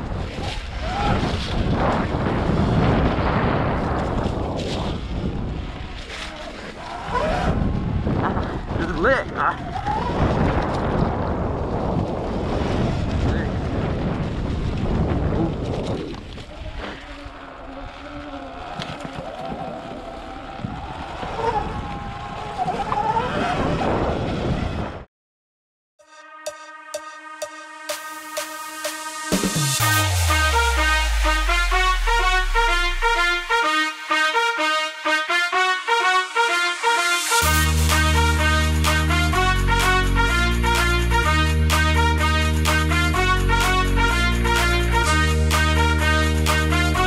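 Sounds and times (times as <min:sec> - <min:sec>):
wind buffeting microphone: 0:00.0 - 0:25.1.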